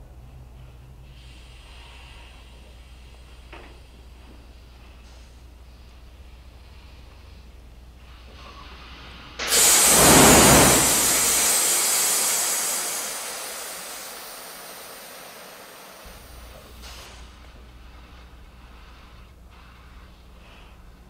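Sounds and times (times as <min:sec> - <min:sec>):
loud blast: 0:09.4 - 0:15.7
hissing rush of vapour: 0:09.4 - 0:17.3.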